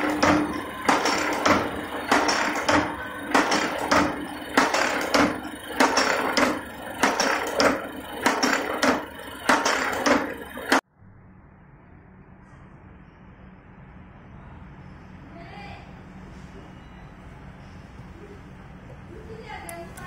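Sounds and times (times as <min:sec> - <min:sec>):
machine clacking rhythmically: 0:00.0 - 0:10.8
motor hum: 0:00.0 - 0:10.8.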